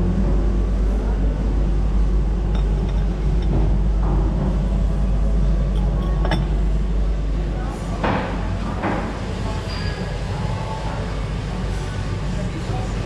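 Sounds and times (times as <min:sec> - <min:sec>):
low mechanical hum: 0:00.0 - 0:13.0
cup clinking against saucer: 0:05.8 - 0:06.5.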